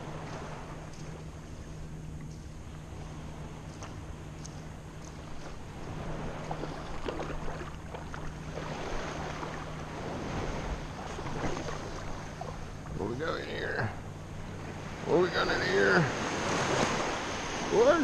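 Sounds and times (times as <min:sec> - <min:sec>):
water sloshing and splashing: 0:00.0 - 0:13.1
wind rumbling on microphone: 0:00.0 - 0:13.2.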